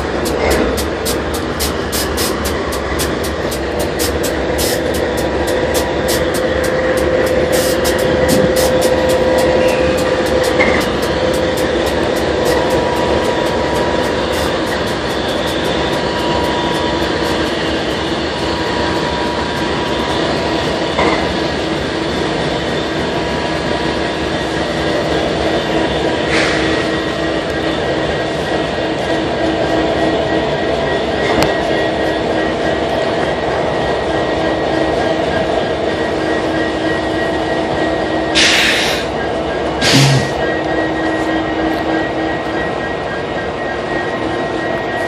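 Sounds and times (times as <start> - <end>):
locomotive engines idling: 0.0 - 45.0
air hissing bursts: 1.0 - 5.1, 7.4 - 12.7, 38.4 - 39.1, 39.8 - 40.4.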